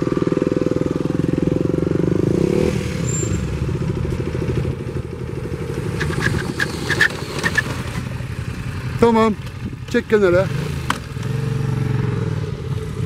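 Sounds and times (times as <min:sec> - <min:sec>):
motorcycle engine idling: 0:00.0 - 0:02.6, 0:03.2 - 0:13.0
motorcycle riding slowly: 0:00.0 - 0:13.0
short high squeaks: 0:03.0 - 0:03.6, 0:05.9 - 0:07.9.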